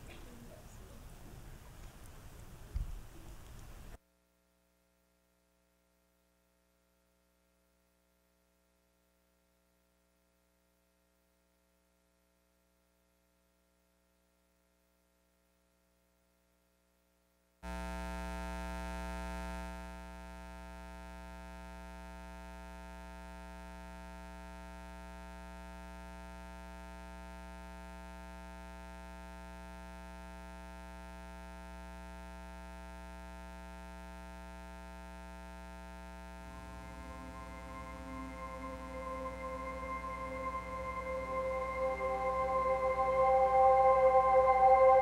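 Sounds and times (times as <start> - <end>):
electrical mains hum: 17.6 - 45.0.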